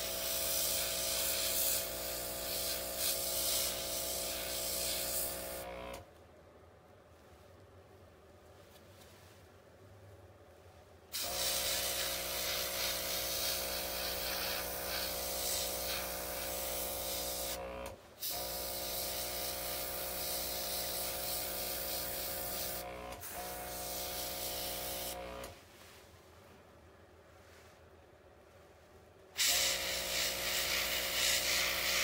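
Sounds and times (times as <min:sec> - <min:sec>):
airbrush spraying hiss: 0:00.0 - 0:05.7, 0:11.1 - 0:17.6, 0:18.2 - 0:25.5, 0:29.4 - 0:32.0
small air compressor humming: 0:00.0 - 0:06.1, 0:11.1 - 0:25.6, 0:29.4 - 0:32.0.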